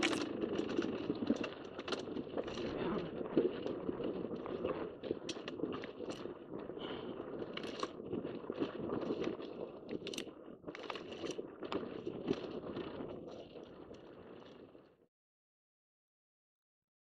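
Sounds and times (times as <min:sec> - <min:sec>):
tyres crunching over stones: 0:00.0 - 0:06.4
dirt bike engine rumble: 0:00.0 - 0:09.2.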